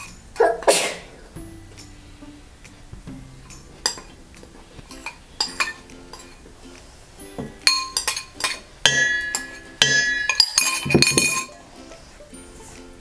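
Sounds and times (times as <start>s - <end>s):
metal spoon clinking in bowl: 4.9s - 6.4s, 7.6s - 11.6s.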